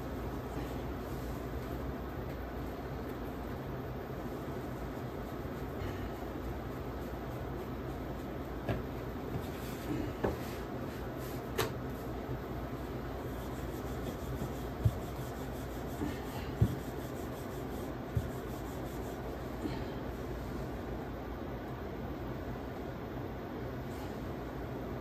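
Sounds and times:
rolling pin rubbing on dough: 0.5 - 20.7
rolling pin knocking on board: 16.5 - 16.9.

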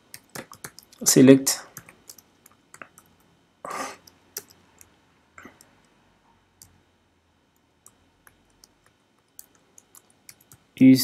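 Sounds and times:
computer keyboard keystrokes: 0.0 - 1.1, 1.7 - 3.3, 4.0 - 4.9, 7.8 - 10.7.

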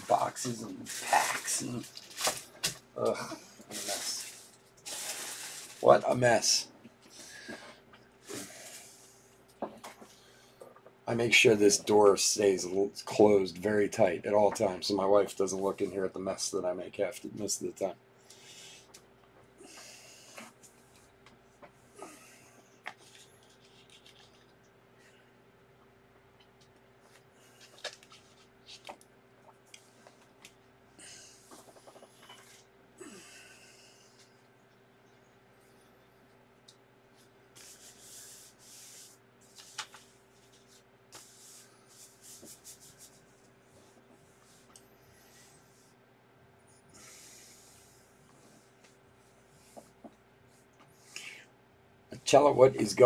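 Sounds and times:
steady low hum: 0.0 - 53.0
faint rustling and scratching: 3.2 - 6.7, 26.4 - 29.0, 31.3 - 32.7, 37.1 - 46.0.

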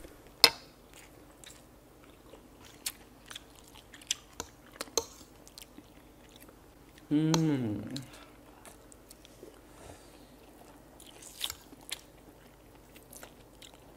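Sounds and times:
chewing noodles: 10.4 - 13.9.

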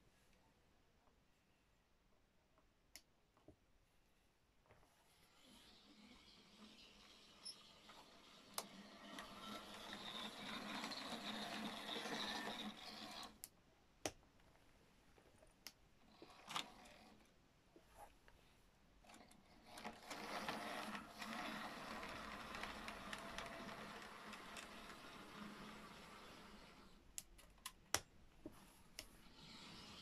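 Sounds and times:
wheels rolling on track: 5.9 - 13.4, 19.6 - 27.0
model train motor running: 6.0 - 13.4, 19.6 - 27.0.

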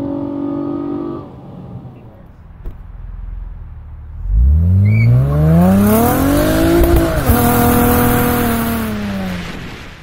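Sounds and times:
car engine accelerating hard: 3.2 - 9.4.

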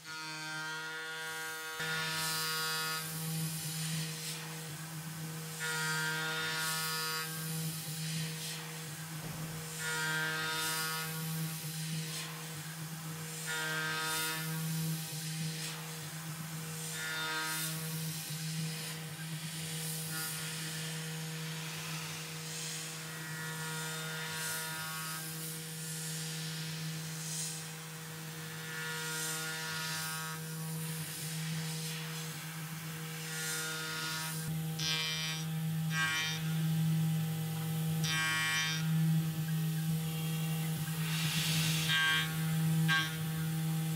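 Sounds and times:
mill spindle whine cutting metal: 0.0 - 43.9
mist coolant hiss: 39.9 - 42.8.

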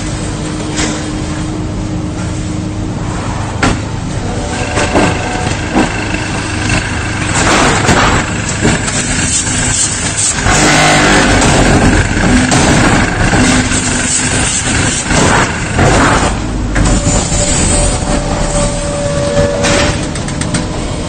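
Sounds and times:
block-making machine humming: 3.6 - 21.0
sharp mechanical knocks: 6.8 - 17.6.

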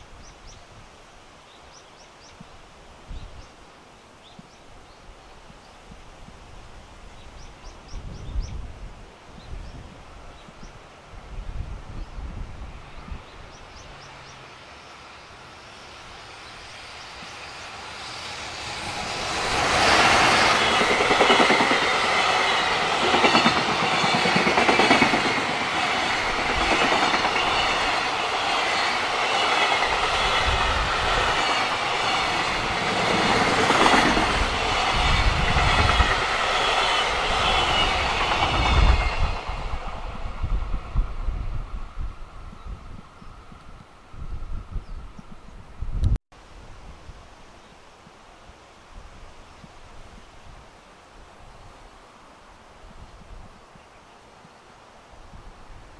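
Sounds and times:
electric locomotive passing: 11.2 - 46.0
train wagons rumbling: 17.0 - 40.9
wheels clacking over rail joints: 18.6 - 39.6.

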